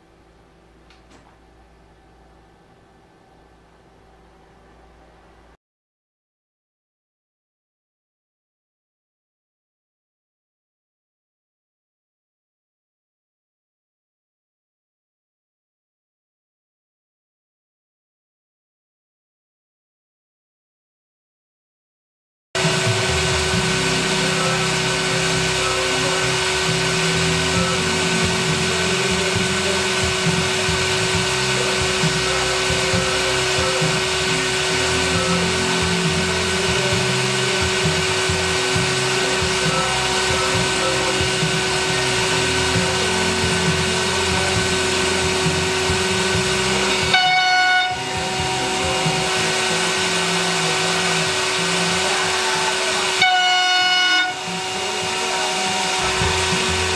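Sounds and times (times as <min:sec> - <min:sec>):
low mechanical rumble: 0:00.0 - 0:05.6, 0:22.6 - 0:56.9
router spindle whining: 0:22.6 - 0:56.9.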